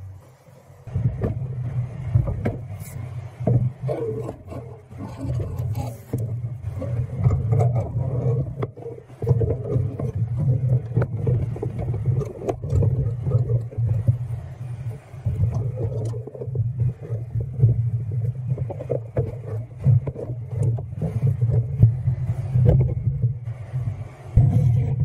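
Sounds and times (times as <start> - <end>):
low rumble: 0.0 - 25.0
metal pipe scraping wooden pole: 3.9 - 13.8.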